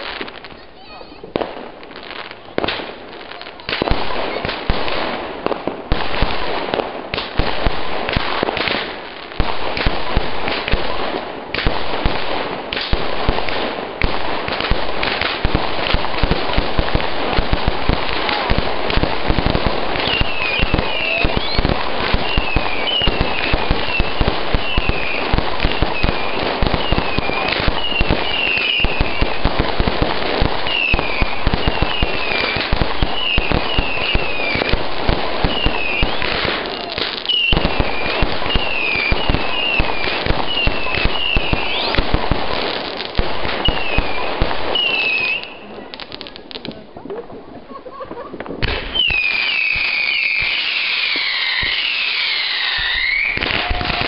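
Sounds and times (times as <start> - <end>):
fireworks crackling and popping: 0.0 - 54.0
firework whistles: 19.4 - 29.6, 30.4 - 34.8, 35.4 - 42.1, 43.5 - 45.8, 48.6 - 54.0.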